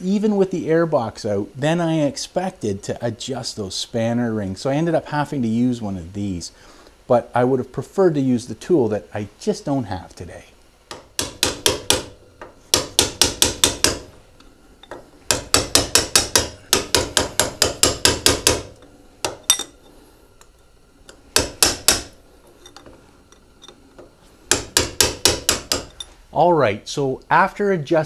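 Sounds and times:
hammer tapping metal: 10.9 - 14.2, 14.8 - 19.9, 21.1 - 26.2.

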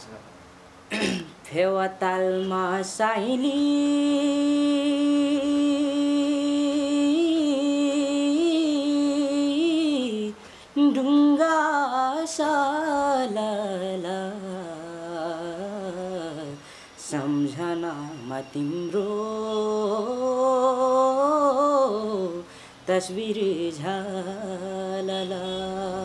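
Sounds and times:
boy singing unaccompanied: 1.4 - 26.0.

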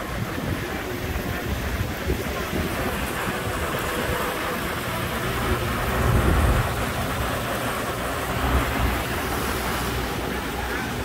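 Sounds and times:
heavy rain falling: 0.0 - 11.0.

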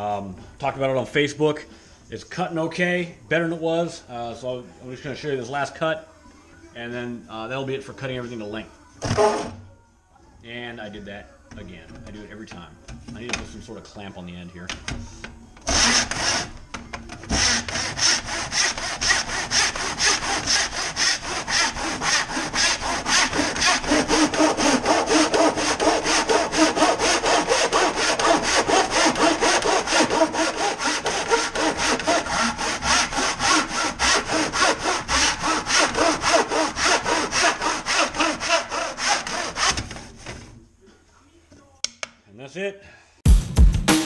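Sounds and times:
hand saw cutting wood: 9.0 - 9.6, 15.7 - 16.6, 17.2 - 40.5.

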